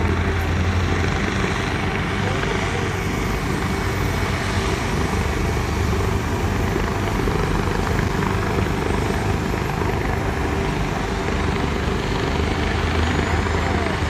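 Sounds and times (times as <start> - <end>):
helicopter engine and rotor drone: 0.0 - 14.0.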